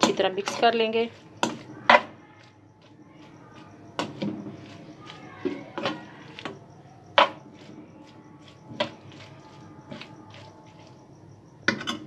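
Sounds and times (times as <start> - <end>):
spatula knocking and scraping pan: 0.0 - 12.0.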